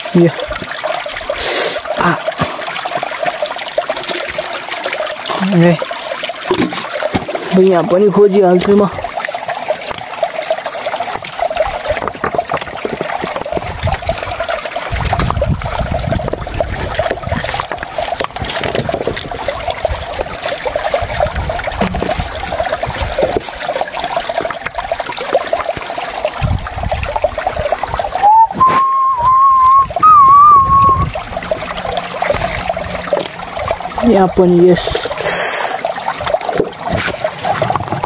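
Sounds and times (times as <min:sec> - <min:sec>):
stream trickling among stones: 0:00.0 - 0:38.0
rocks knocking and scraping: 0:11.9 - 0:14.2, 0:15.0 - 0:19.4, 0:21.8 - 0:22.4
wavering whistle-like tone: 0:28.2 - 0:31.2.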